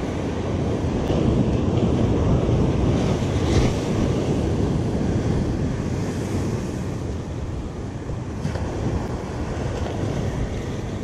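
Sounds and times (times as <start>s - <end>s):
surf breaking on beach: 0.0s - 11.0s
wind on microphone: 0.0s - 11.0s.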